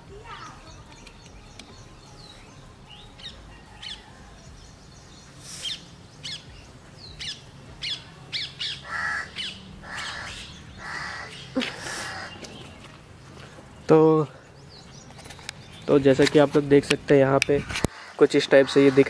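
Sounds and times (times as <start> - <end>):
harsh bird calls: 0.2 - 16.5, 17.8 - 19.0
short sharp bird chirps: 5.3 - 5.9.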